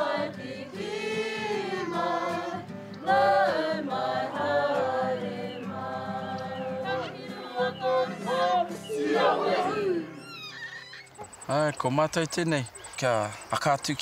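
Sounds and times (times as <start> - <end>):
children and adults singing: 0.0 - 10.2.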